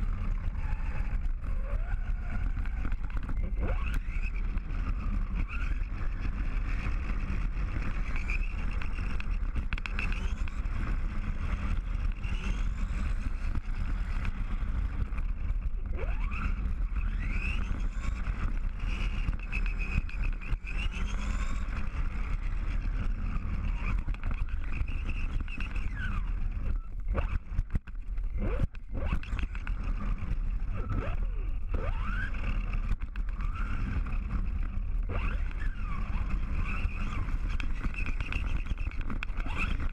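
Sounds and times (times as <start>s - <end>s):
rc car motor whining: 0.0s - 39.9s.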